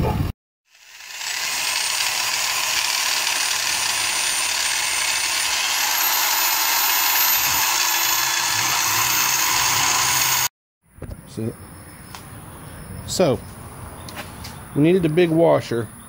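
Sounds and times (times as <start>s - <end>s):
electric drill boring into steel: 0.7s - 10.5s.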